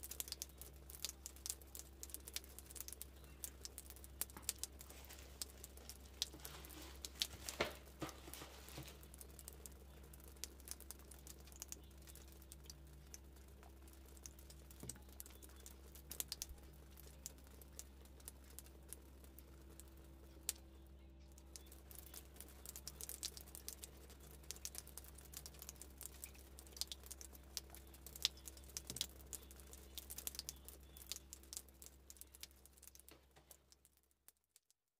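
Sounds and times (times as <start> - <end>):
faint low hum: 0.0 - 34.0
tissue paper rustling: 6.3 - 9.0.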